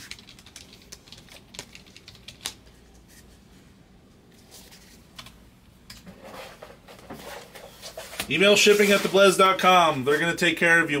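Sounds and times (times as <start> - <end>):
trading cards clicking and tapping: 0.0 - 2.7.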